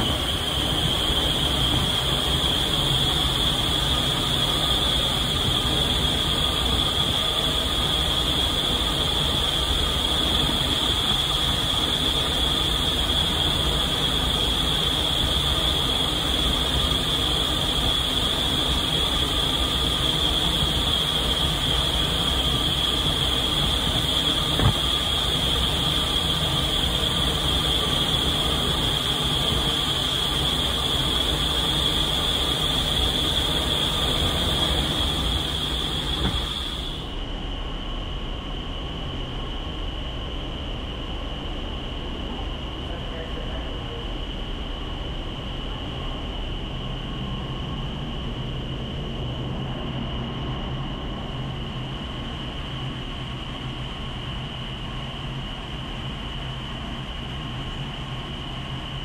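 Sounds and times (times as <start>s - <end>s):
high whine: 0.0s - 37.4s
wind tunnel air rushing: 0.0s - 59.0s.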